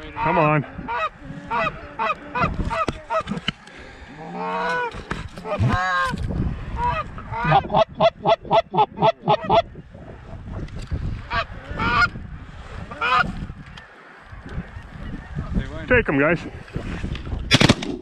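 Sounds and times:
goose honking and clucking: 0:00.0 - 0:03.6, 0:04.2 - 0:06.2, 0:06.8 - 0:09.7, 0:11.2 - 0:12.2, 0:12.8 - 0:13.4.

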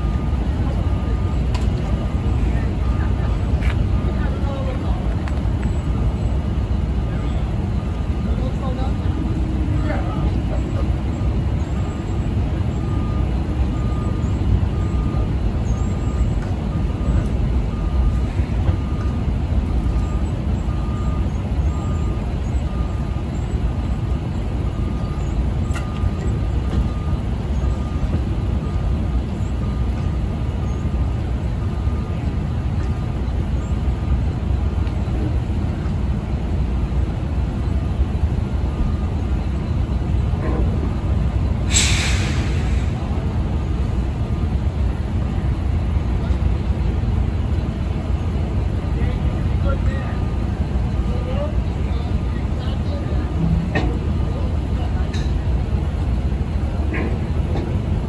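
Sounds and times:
backup alarm beeping: 0:00.0 - 0:30.9
truck engine rumbling: 0:00.0 - 0:58.0.

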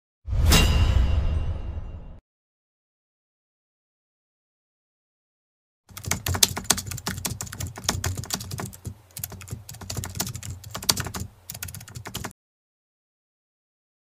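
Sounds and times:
computer keyboard typing: 0:05.9 - 0:12.3.

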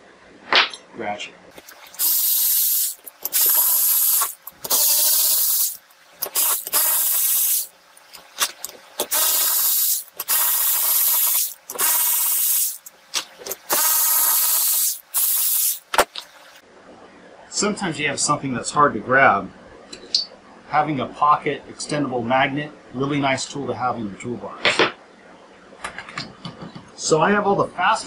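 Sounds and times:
power ratchet whirring: 0:01.6 - 0:16.3.

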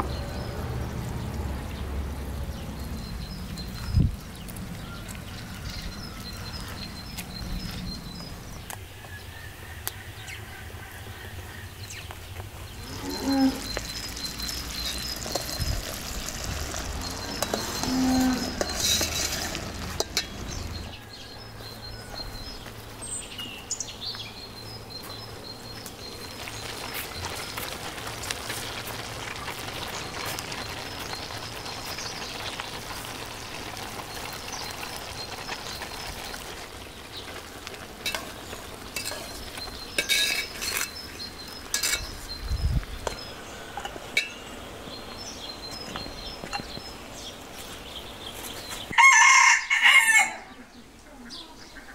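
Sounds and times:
syrup bubbling in a pot: 0:13.6 - 0:17.8, 0:25.9 - 0:42.4
metal spoon clinking on pot: 0:39.0 - 0:39.4, 0:40.0 - 0:41.0, 0:41.7 - 0:42.1.

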